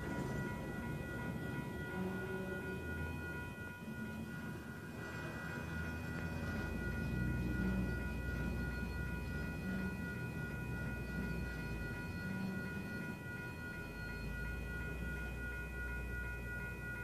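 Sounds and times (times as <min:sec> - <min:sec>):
train low rumble: 0:00.0 - 0:17.0
train wheels squealing: 0:04.8 - 0:15.4.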